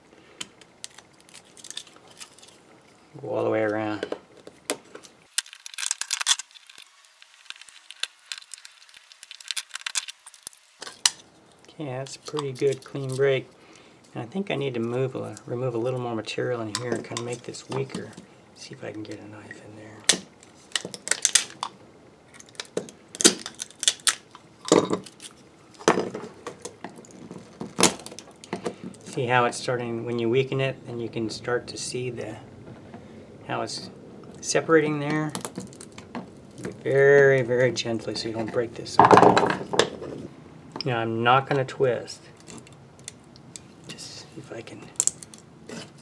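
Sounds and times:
plastic cracking and snapping: 0.4 - 2.6, 4.4 - 11.2, 20.0 - 21.8, 22.4 - 29.2, 35.1 - 36.9, 44.9 - 45.8.

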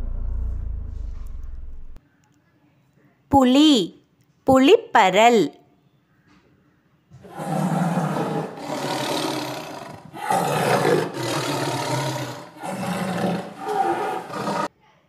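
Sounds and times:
tiger growling and roaring: 7.2 - 14.7.

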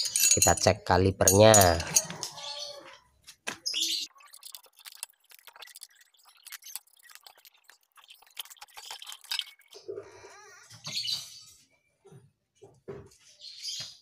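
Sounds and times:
spanner clinking on axle nut: 0.0 - 2.3.

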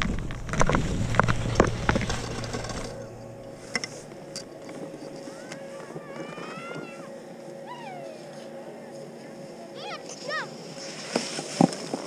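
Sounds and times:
skis scraping over snow: 0.0 - 4.2, 10.0 - 12.0
wind rumbling on microphone: 0.0 - 7.0
high rising calls: 0.8 - 8.8.

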